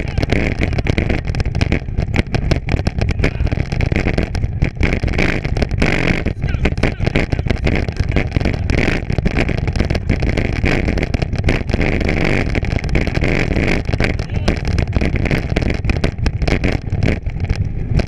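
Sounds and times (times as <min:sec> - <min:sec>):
bike frame rattling and knocking: 0:00.0 - 0:06.2, 0:06.8 - 0:18.0
bike rushing over rough trail: 0:00.0 - 0:18.0.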